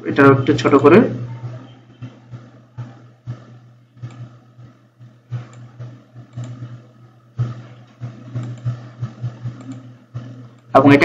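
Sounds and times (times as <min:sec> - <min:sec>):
low electrical hum: 0:00.0 - 0:11.0
computer mouse clicks: 0:04.0 - 0:04.4, 0:05.4 - 0:06.8, 0:07.8 - 0:09.9, 0:10.5 - 0:10.7.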